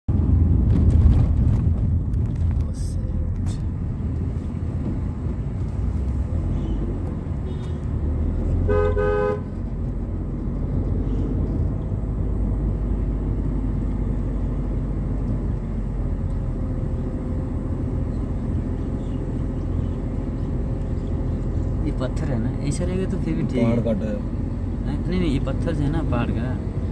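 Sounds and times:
car cabin rumble: 0:00.1 - 0:12.8
vehicle horn honking: 0:07.4 - 0:07.8, 0:08.6 - 0:09.5.

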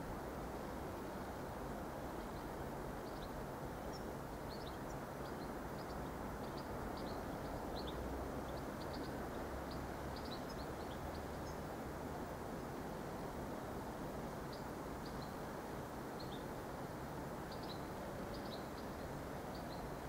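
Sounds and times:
small birds chirping: 0:02.2 - 0:11.7, 0:14.4 - 0:16.8, 0:17.4 - 0:20.0.

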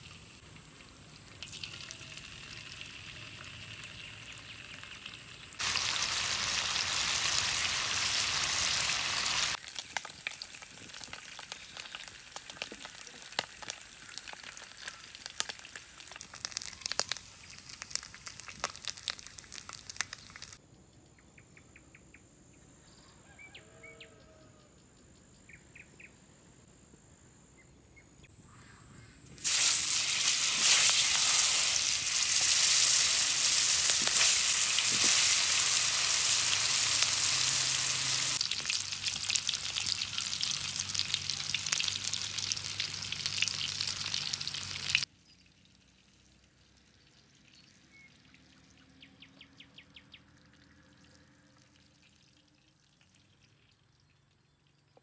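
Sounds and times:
faint frying crackle with clicks: 0:00.0 - 0:07.6, 0:09.5 - 0:20.6, 0:28.5 - 0:48.7, 0:50.0 - 0:55.0
sausages sizzling in hot oil: 0:00.0 - 0:20.6, 0:29.3 - 0:45.1.

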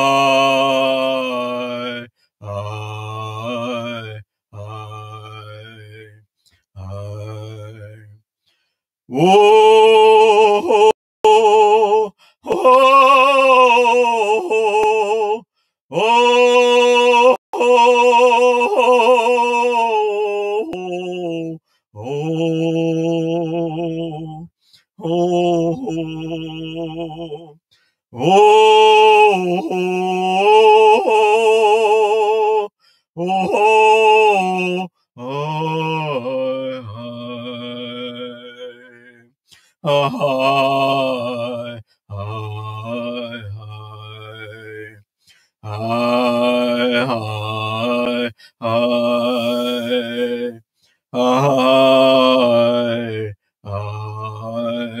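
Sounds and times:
person chanting a sung prayer: 0:00.0 - 0:06.1, 0:06.8 - 0:08.1, 0:09.1 - 0:27.6, 0:28.2 - 0:39.1, 0:39.8 - 0:45.0, 0:45.6 - 0:50.6, 0:51.2 - 0:55.0
person singing with vibrato: 0:09.1 - 0:39.2, 0:45.7 - 0:55.0.

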